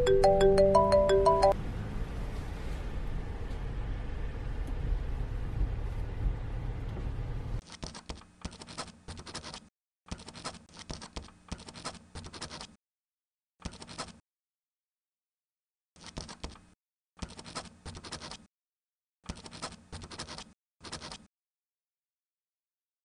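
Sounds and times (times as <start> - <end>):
low outdoor rumble: 1.6 - 7.6
pen scratching on paper: 7.6 - 12.8, 13.6 - 14.2, 16.0 - 16.6, 17.2 - 18.5, 19.3 - 21.3.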